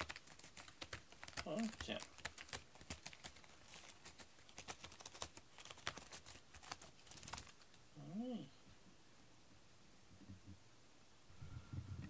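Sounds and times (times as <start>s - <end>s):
cat claws scratching cardboard: 0.0s - 7.0s.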